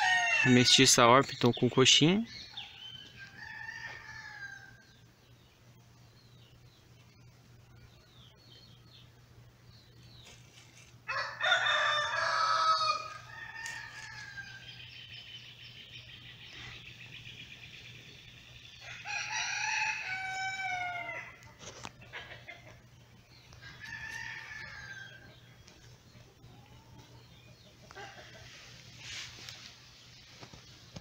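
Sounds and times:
rooster crowing: 0.0 - 0.8, 3.2 - 4.9, 11.1 - 14.8, 18.8 - 21.4, 23.6 - 25.3.

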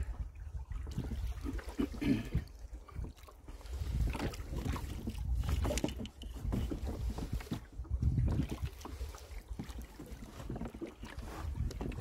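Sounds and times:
oars splashing in water: 0.0 - 12.0
wind rumble on microphone: 0.0 - 12.0
oar clicks: 4.1 - 7.6.

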